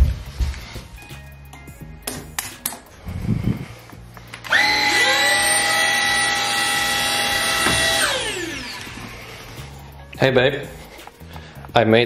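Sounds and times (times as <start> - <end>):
vacuum cleaner motor whining: 4.4 - 9.5.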